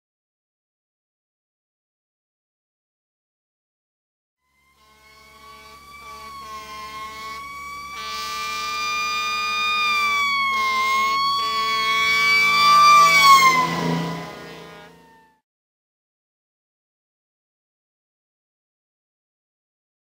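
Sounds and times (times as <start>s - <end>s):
emergency vehicle siren passing: 4.6s - 15.4s.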